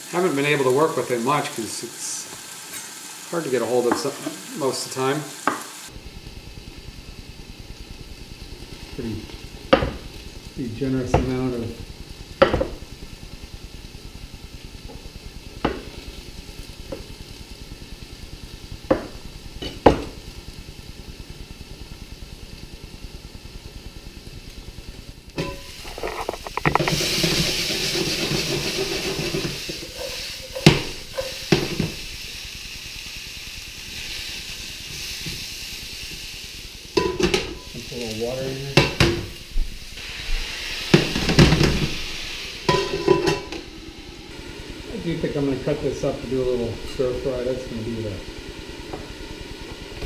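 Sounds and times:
hot pan sizzling: 0.0 - 50.0
utensil knocking on pan: 9.7 - 10.0, 12.4 - 12.8, 18.9 - 20.2.

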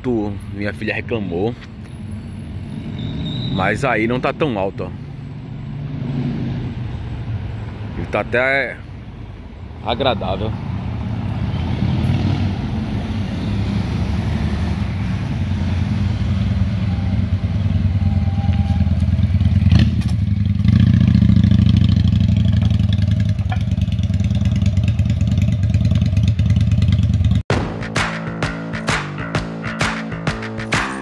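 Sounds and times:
motorcycle engine running: 18.6 - 27.4.

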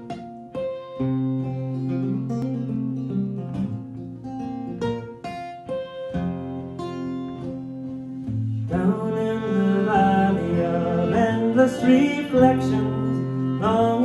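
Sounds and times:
acoustic guitar: 0.0 - 14.0
bowed strings: 6.1 - 14.0.

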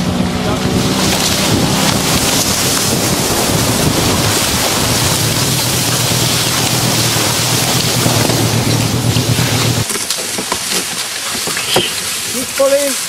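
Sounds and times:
low motor hum: 0.0 - 9.8
reeds scraping along a boat: 0.6 - 13.0.

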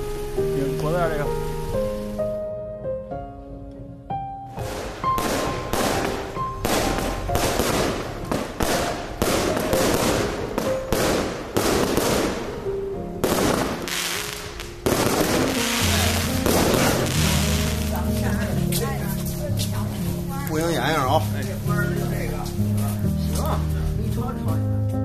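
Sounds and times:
background music: 0.0 - 25.0
fireworks bursting with sharp bangs: 4.6 - 23.4.

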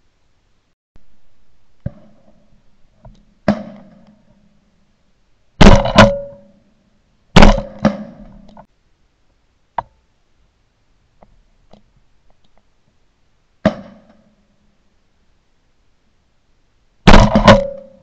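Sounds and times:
faint shotgun shots: 5.6 - 6.4, 7.4 - 8.3, 17.1 - 18.0
shotgun blasts: 5.6 - 6.5, 7.4 - 8.4, 17.1 - 18.0.

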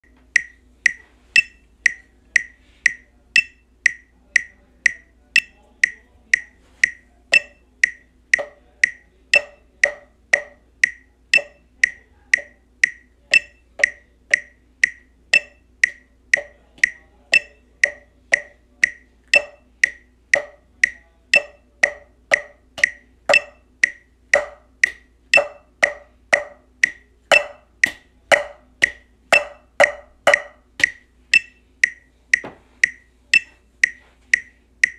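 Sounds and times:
metronome clicking: 0.0 - 34.9.

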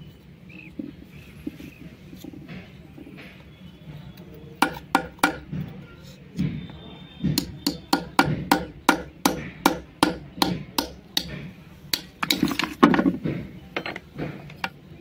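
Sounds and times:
hammer knocking on metal blade: 4.6 - 5.8, 7.2 - 14.8.

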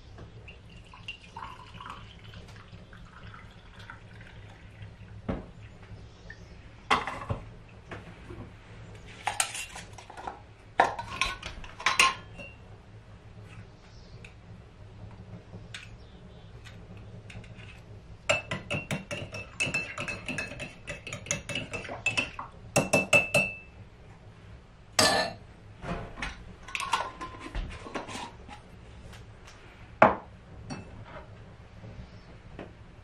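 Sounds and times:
spoon clinking in glass jar: 18.3 - 23.6.

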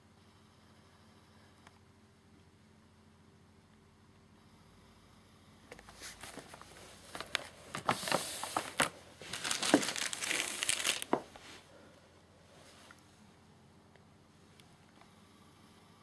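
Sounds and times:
plastic wrapping crinkling: 5.8 - 11.4.

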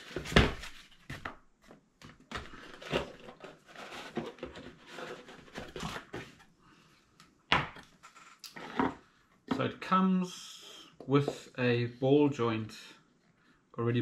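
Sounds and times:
packaging rustling and crinkling: 2.1 - 6.2.

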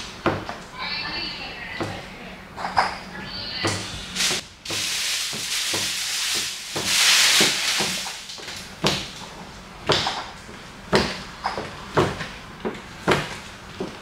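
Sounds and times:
squeegee rubbing over wet film: 4.1 - 8.5.

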